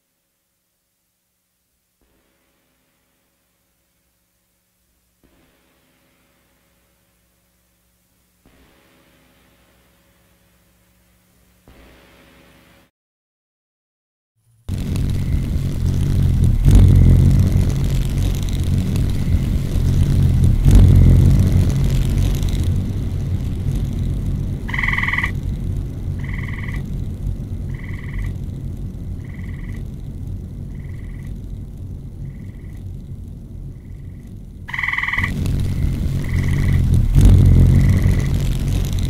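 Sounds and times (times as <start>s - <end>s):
deep rumbling noise: 14.7s - 39.0s.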